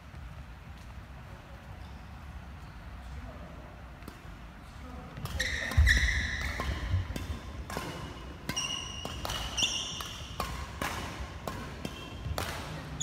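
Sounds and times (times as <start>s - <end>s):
shoes squeaking on floor: 1.7s - 2.9s, 5.3s - 6.9s, 8.5s - 10.4s
rackets striking shuttlecock: 5.2s - 13.0s.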